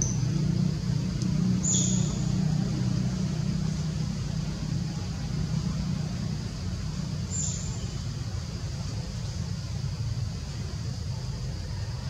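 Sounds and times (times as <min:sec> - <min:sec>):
low engine rumble: 0:00.0 - 0:12.0.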